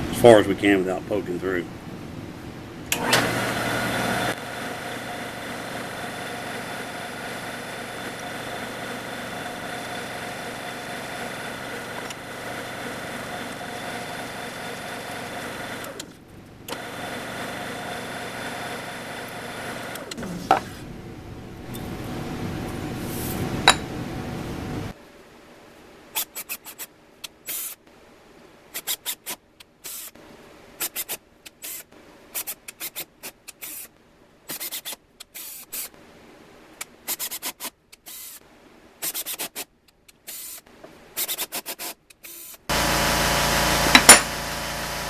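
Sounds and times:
drill press motor running: 0:02.9 - 0:16.1, 0:16.7 - 0:20.2, 0:42.7 - 0:45.0.

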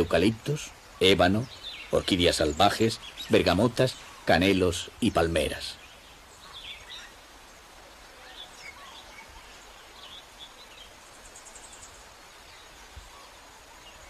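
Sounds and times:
bird chirps: 0:00.0 - 0:07.2
soft steady hiss: 0:00.0 - 0:14.0.

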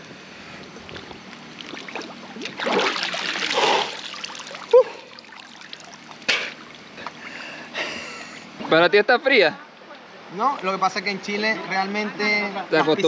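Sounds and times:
water splashing: 0:00.6 - 0:07.3.

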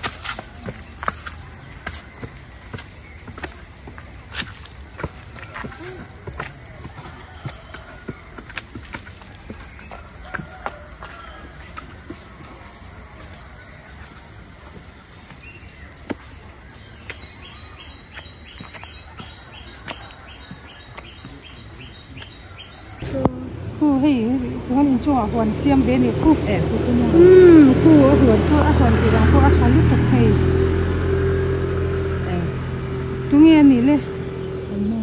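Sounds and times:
footsteps on concrete steps: 0:00.0 - 0:23.2
insects droning: 0:00.0 - 0:35.0.

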